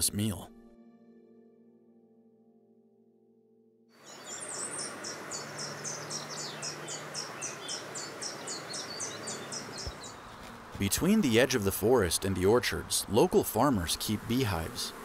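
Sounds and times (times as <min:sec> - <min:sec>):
faint music drone: 0:00.0 - 0:10.1
bird chirps: 0:04.0 - 0:10.6
steady outdoor hiss: 0:04.0 - 0:15.0.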